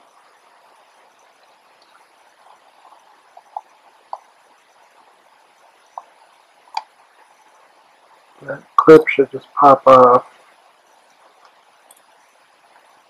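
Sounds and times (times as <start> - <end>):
light hiss: 0.0 - 13.0.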